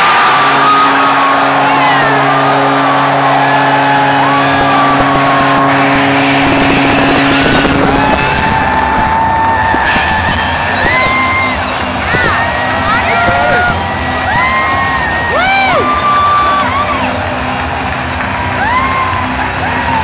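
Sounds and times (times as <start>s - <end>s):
goal horn low blast: 0.0s - 14.3s
crowd cheering and whistling: 0.0s - 20.0s.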